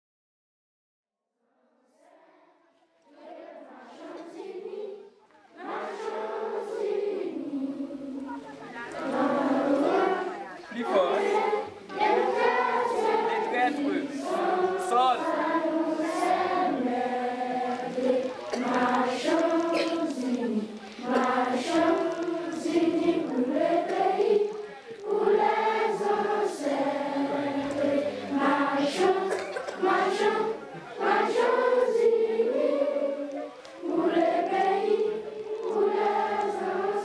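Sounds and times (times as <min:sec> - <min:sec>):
children singing in unison: 0:02.0 - 0:37.0.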